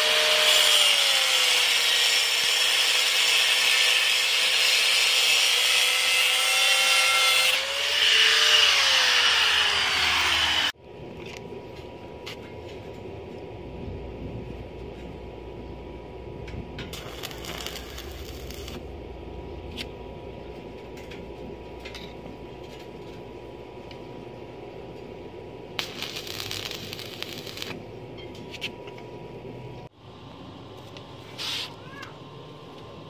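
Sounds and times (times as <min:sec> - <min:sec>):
arc welding crackle: 0:00.0 - 0:08.2, 0:16.7 - 0:19.0, 0:25.7 - 0:27.8
steady hum: 0:10.7 - 0:31.4.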